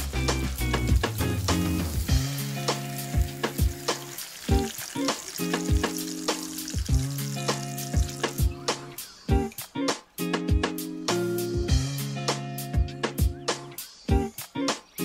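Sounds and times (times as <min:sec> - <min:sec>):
food sizzling in hot oil: 0:00.0 - 0:08.9
background music with beat: 0:00.0 - 0:15.0.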